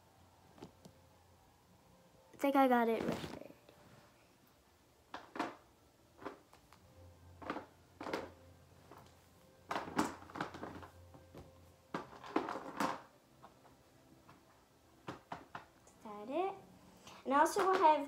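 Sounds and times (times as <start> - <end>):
plastic toy figures clattering: 7.4 - 9.1, 9.7 - 13.1, 17.5 - 18.0.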